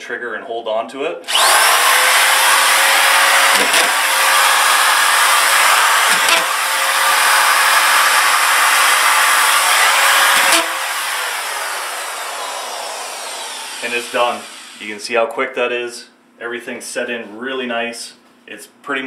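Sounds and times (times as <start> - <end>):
screw gun whining: 1.3 - 14.8
screws driven into drywall: 1.3 - 14.8.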